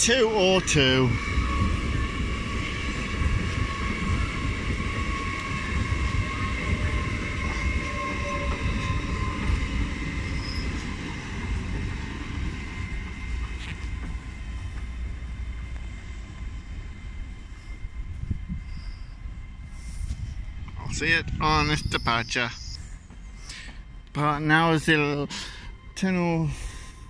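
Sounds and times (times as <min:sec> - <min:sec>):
train wheels rumbling: 0:00.0 - 0:27.0
high steady wheel squeal: 0:00.7 - 0:11.6, 0:17.2 - 0:23.8.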